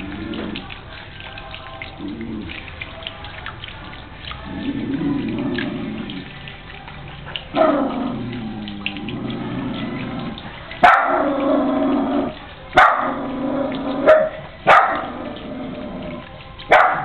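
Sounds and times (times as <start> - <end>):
garden fountain trickling: 0.0 - 17.0
dog barking: 10.8 - 11.4, 12.8 - 13.2, 14.0 - 15.1, 16.7 - 17.0.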